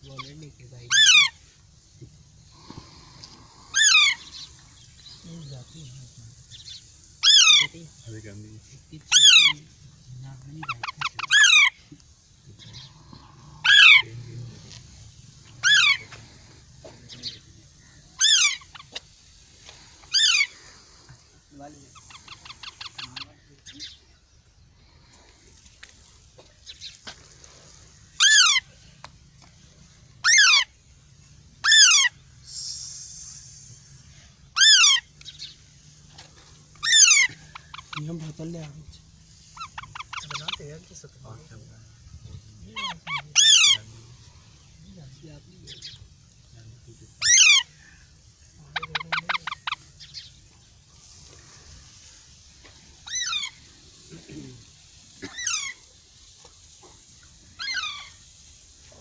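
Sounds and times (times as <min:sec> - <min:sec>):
parakeet harsh calls: 0:00.0 - 0:01.5, 0:02.6 - 0:05.2, 0:06.5 - 0:07.8, 0:09.1 - 0:09.8, 0:10.6 - 0:11.9, 0:12.6 - 0:14.4, 0:15.4 - 0:19.1, 0:19.8 - 0:21.1, 0:21.9 - 0:24.0, 0:28.0 - 0:28.7, 0:30.2 - 0:30.8, 0:31.6 - 0:32.2, 0:34.5 - 0:35.6, 0:36.7 - 0:38.2, 0:39.4 - 0:40.8, 0:42.6 - 0:44.7, 0:47.2 - 0:50.4, 0:53.0 - 0:54.1, 0:55.2 - 0:55.9, 0:57.6 - 0:58.3.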